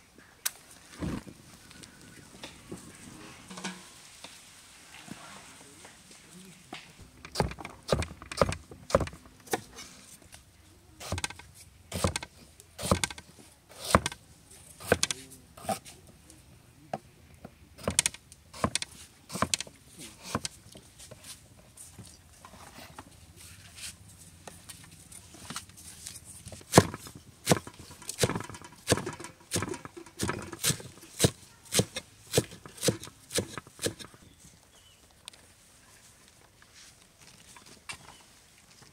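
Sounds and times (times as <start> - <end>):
knife chopping vegetables on board: 11.0 - 12.2, 12.8 - 13.2, 13.8 - 14.2, 14.8 - 15.8, 17.8 - 20.5, 28.2 - 34.1.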